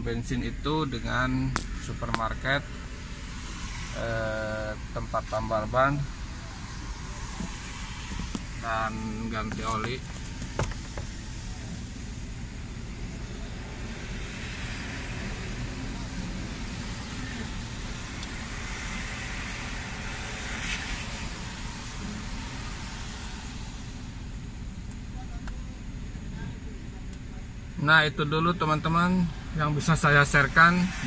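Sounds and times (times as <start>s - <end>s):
car engine idling: 0.0s - 31.0s
light rain on windshield: 4.7s - 25.8s.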